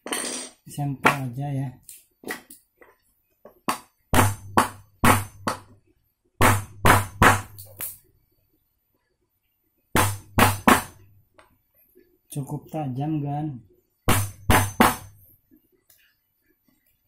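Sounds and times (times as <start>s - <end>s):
hammer striking chisel into wood: 3.7s - 5.7s, 6.4s - 7.6s, 10.0s - 11.0s, 14.1s - 15.2s.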